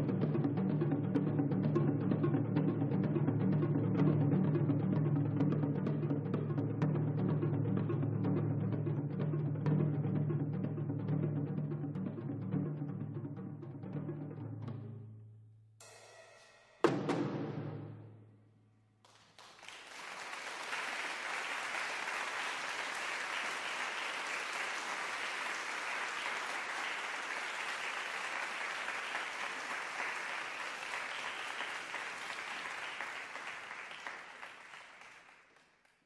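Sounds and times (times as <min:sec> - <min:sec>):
percussion note ringing: 0:15.8 - 0:17.2
audience applauding: 0:19.0 - 0:36.0.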